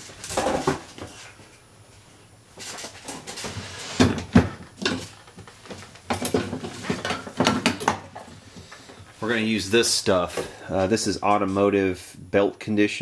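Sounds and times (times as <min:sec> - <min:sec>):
tools clunking and clattering: 0:03.0 - 0:09.0.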